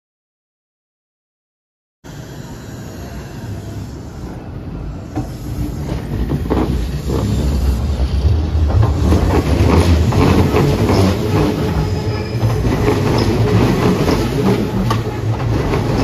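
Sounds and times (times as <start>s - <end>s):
electric train rumble: 2.1s - 16.0s
wheels clacking over rail joints: 5.1s - 16.0s.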